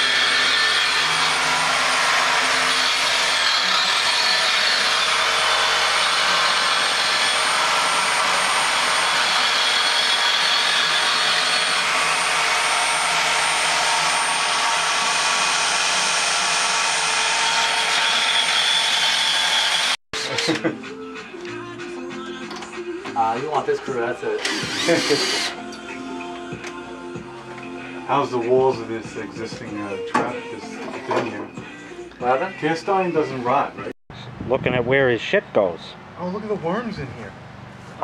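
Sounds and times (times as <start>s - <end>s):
power tool motor whining: 0.0s - 20.6s, 24.4s - 25.6s.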